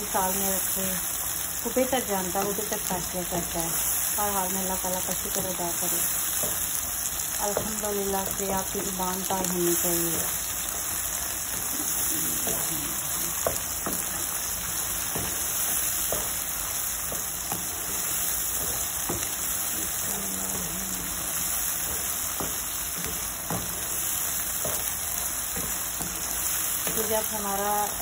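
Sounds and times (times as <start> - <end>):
onions sizzling in a pan: 0.0 - 28.0
spatula tapping a pan: 6.3 - 9.0, 13.3 - 27.4.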